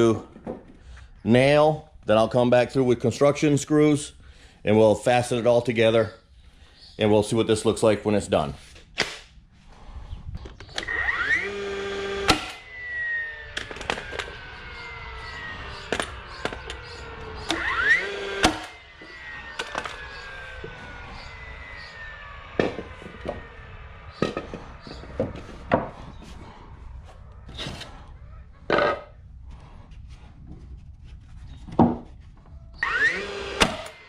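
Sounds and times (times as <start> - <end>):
nail gun firing crack: 9.0 - 9.3, 10.7 - 12.6, 13.5 - 14.4, 15.8 - 16.8, 17.4 - 18.8, 32.8 - 34.0
nail gun motor whine: 9.0 - 29.8, 32.6 - 34.0.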